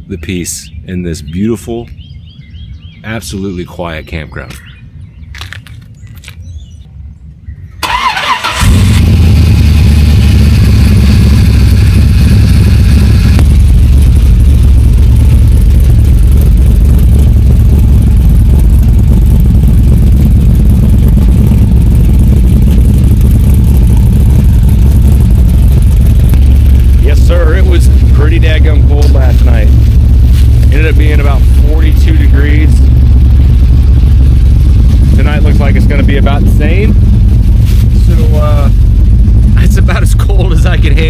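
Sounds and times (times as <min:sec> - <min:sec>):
starter cranking engine: 0:07.8 - 0:09.8
car engine idling: 0:07.8 - 0:41.0.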